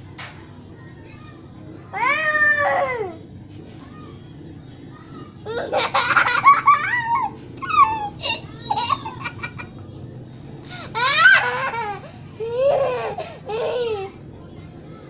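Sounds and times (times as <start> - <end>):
girl laughing loudly: 5.5 - 7.3.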